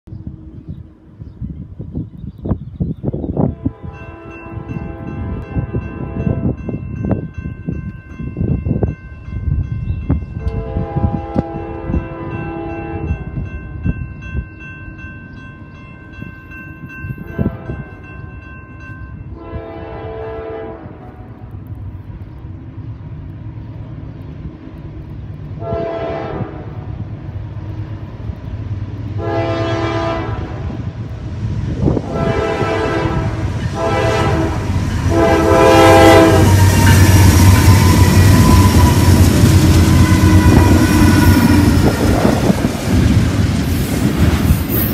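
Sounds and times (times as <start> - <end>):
locomotive air horn blasts: 3.4 - 6.6, 10.4 - 13.2, 17.3 - 18.0, 19.3 - 21.3, 25.6 - 26.9, 29.2 - 30.8, 32.0 - 41.7
crossing warning bell ringing: 3.8 - 19.6, 32.3 - 43.0
diesel locomotive rumble: 18.8 - 44.9.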